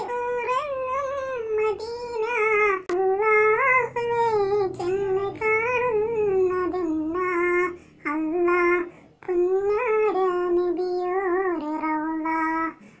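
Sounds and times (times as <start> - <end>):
person singing devotional song: 0.0 - 13.0
singer breathing: 7.7 - 8.1, 8.8 - 9.2, 12.8 - 13.0.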